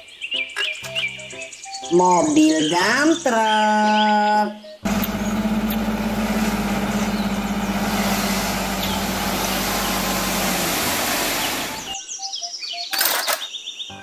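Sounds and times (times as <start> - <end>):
hydraulic hoist: 4.9 - 12.0
soil sliding out: 4.9 - 12.0
truck engine running: 4.9 - 12.0.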